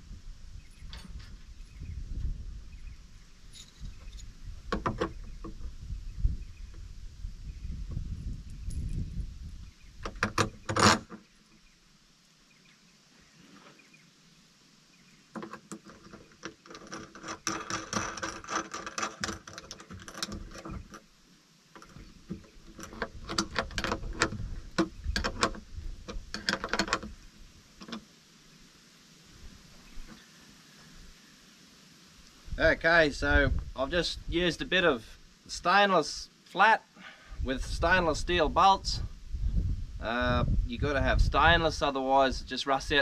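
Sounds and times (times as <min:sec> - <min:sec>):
metal bolts and tool clinking: 0:03.5 - 0:05.1, 0:21.8 - 0:27.1.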